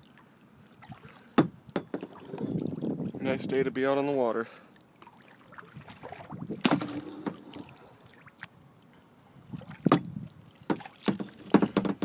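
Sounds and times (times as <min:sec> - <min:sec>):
paddle splashing in water: 0:00.0 - 0:03.2, 0:04.8 - 0:08.5, 0:09.5 - 0:12.0.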